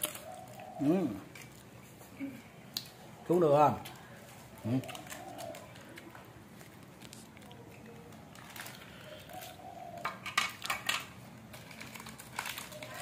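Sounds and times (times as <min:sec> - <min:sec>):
faint voices: 0:11.8 - 0:13.0.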